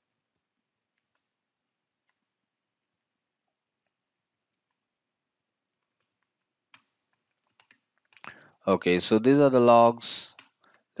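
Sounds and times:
faint keyboard keystroke clicks: 2.0s - 2.3s, 3.8s - 4.8s, 5.7s - 8.5s.

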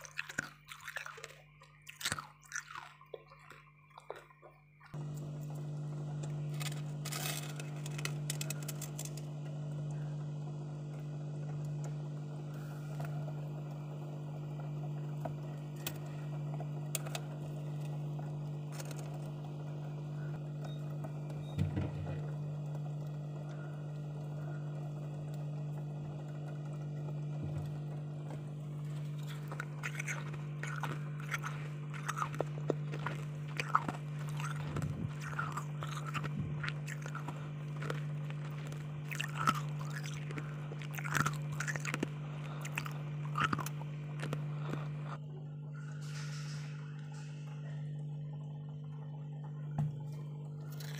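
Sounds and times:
low hum: 0.0s - 50.9s
fingers scraping and crunching frost: 6.1s - 9.3s, 18.7s - 19.3s, 28.3s - 45.2s, 50.6s - 50.9s.

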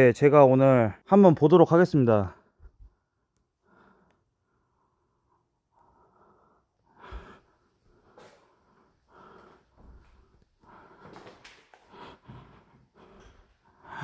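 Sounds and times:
faint breathing: 2.3s - 14.0s
footsteps walking: 8.0s - 8.6s, 9.2s - 13.6s.

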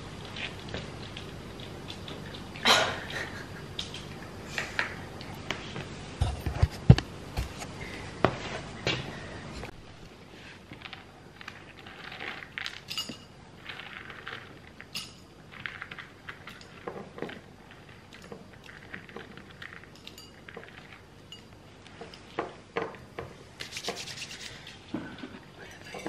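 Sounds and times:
kibble rattling in ceramic bowls: 10.9s - 22.3s.

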